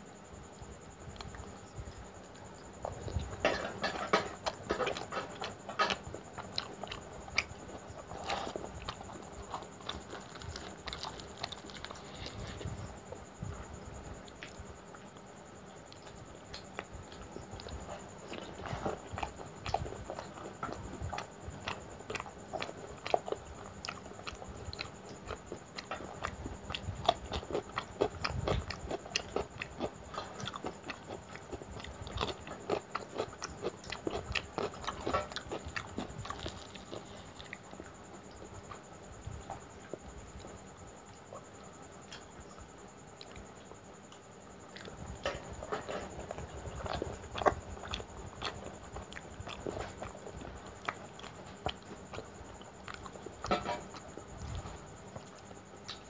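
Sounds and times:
chewing and wet mouth smacks: 43.2 - 56.0.

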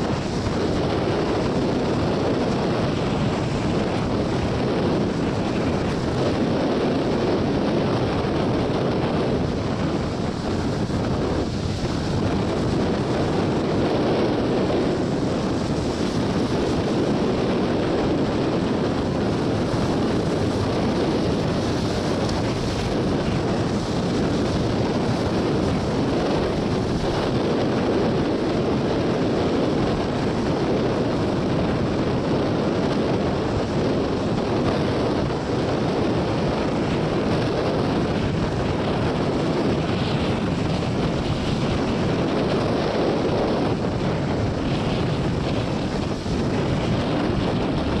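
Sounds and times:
surf breaking on rocks: 0.0 - 31.7
wind buffeting microphone: 0.0 - 48.0.

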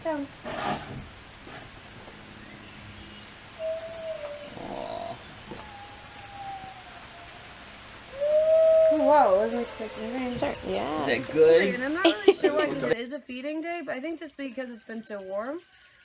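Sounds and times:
otter whining calls: 2.4 - 12.1.

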